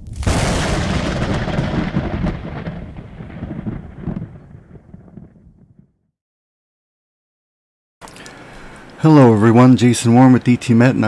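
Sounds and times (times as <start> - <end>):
thunder crack and rumble: 0.0 - 6.0.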